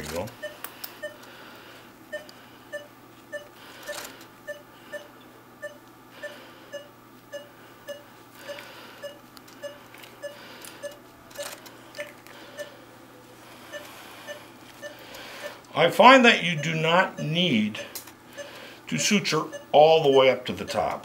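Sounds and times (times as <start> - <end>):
monitor beeping: 0.0 - 1.3, 2.1 - 12.8, 13.6 - 21.0.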